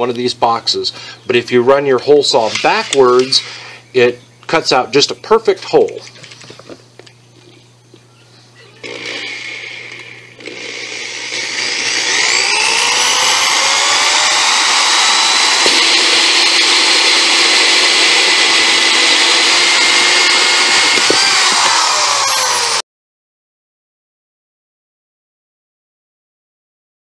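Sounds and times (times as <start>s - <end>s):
electric drill motor whine: 8.6s - 22.8s.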